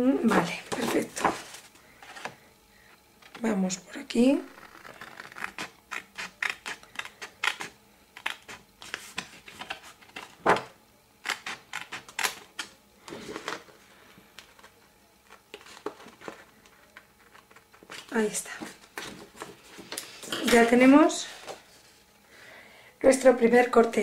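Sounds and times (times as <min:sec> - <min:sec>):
scissors snipping paper: 0:04.6 - 0:10.3, 0:11.2 - 0:12.7.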